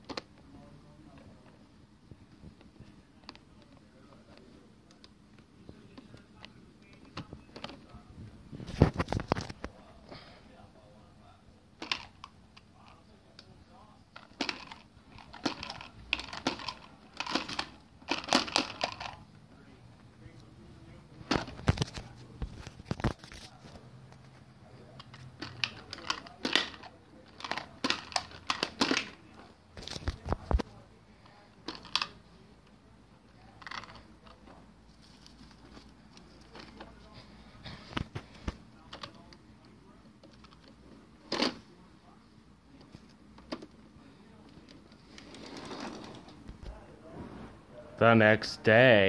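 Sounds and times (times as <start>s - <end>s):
plastic toy clicks and clatter: 14.2s - 19.2s, 25.0s - 29.2s.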